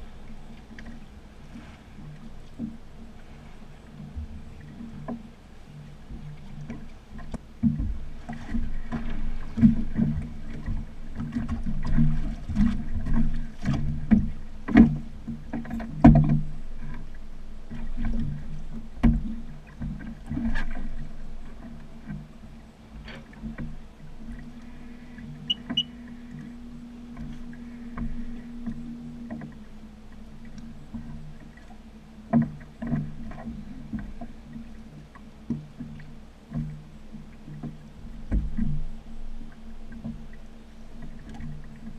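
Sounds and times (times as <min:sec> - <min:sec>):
water slapping against hull: 0:00.0 - 0:41.9
jet ski idling: 0:23.7 - 0:35.5.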